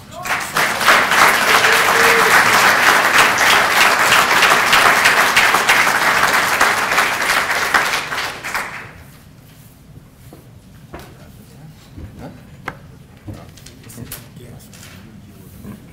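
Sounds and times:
audience applause: 0.0s - 9.0s.

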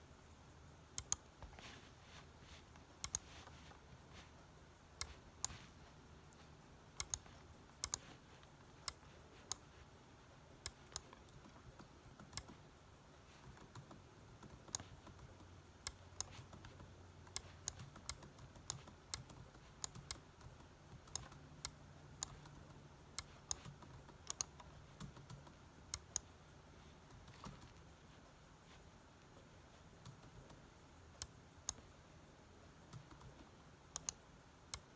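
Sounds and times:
faint low hum: 0.0s - 34.9s
laptop keys clicking: 0.9s - 1.8s, 2.5s - 9.8s, 10.5s - 26.3s, 27.0s - 28.0s, 32.8s - 34.9s.

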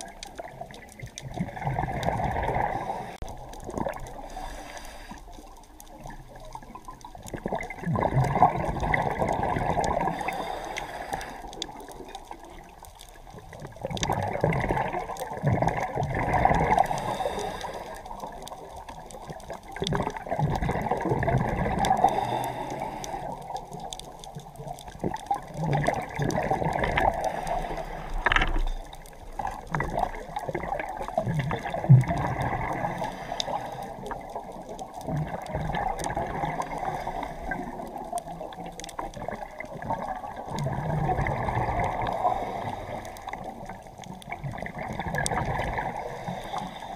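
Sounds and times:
exhaled bubbles gurgling: 0.0s - 46.9s
diver breathing through regulator: 4.1s - 5.4s, 10.0s - 11.7s, 16.7s - 18.2s, 21.8s - 23.6s, 27.0s - 28.9s, 32.6s - 34.2s, 36.6s - 38.0s, 42.0s - 43.5s, 45.9s - 46.9s.

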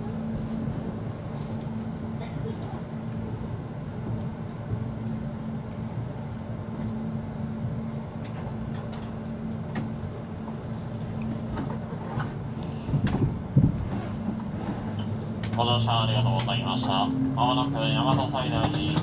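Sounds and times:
train cabin rumble: 0.0s - 19.0s.

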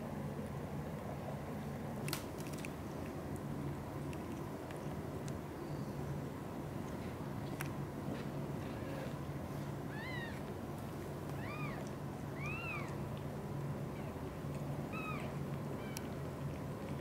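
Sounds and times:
kittens mewing: 9.9s - 10.5s, 11.3s - 13.0s.

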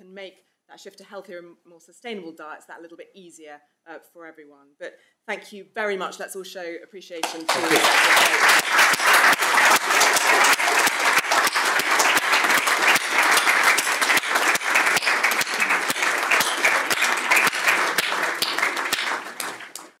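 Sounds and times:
audience applauding: 7.2s - 20.0s.

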